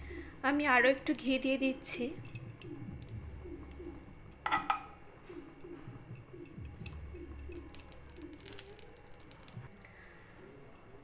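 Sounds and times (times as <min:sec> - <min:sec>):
metal spoon clinking on pan: 0:04.4 - 0:04.9
ghee crackling in hot pan: 0:06.9 - 0:10.4.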